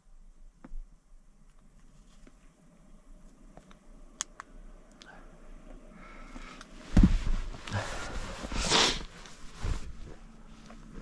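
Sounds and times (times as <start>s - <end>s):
faint clicks: 3.2s - 5.8s
clothing rustling and scuffing: 6.7s - 11.0s
heavy thump: 6.9s - 7.6s.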